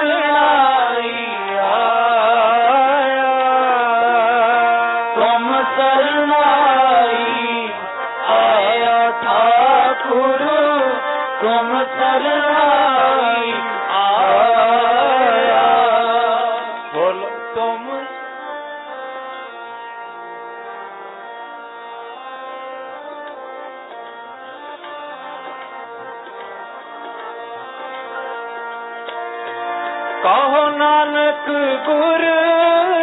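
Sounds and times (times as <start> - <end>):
devotional music with sliding melody: 0.0 - 33.0.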